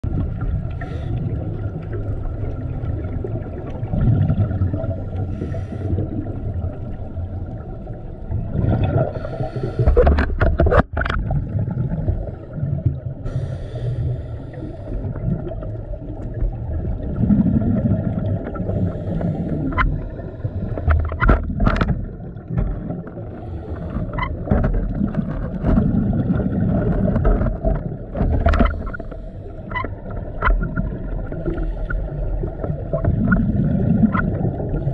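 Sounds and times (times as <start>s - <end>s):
low underwater rumble: 0.0s - 34.9s
bubbling surge: 1.5s - 5.2s, 15.0s - 18.9s, 24.9s - 29.3s, 30.0s - 34.9s.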